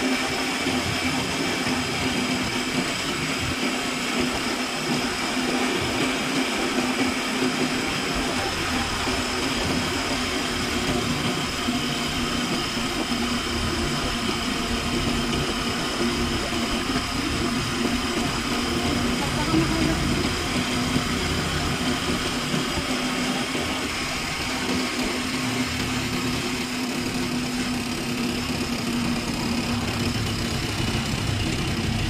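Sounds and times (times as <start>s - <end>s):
vehicle engine drone: 0.0s - 32.0s.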